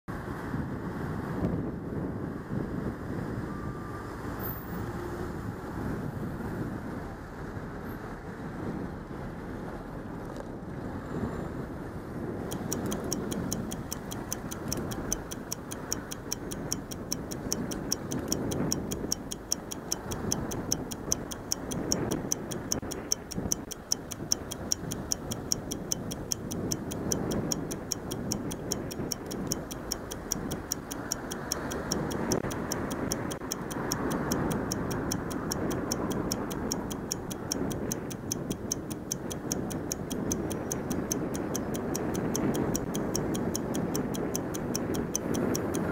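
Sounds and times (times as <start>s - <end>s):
traffic rumble: 0.1s - 45.9s
wind noise: 0.1s - 45.9s
stopwatch ticking: 12.3s - 45.9s.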